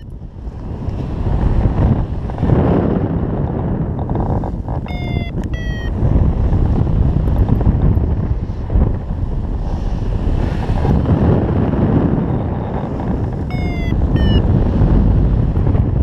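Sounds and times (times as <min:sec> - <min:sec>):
wind buffeting microphone: 0:00.0 - 0:16.0
short electronic beeps: 0:04.9 - 0:06.0, 0:13.5 - 0:14.5.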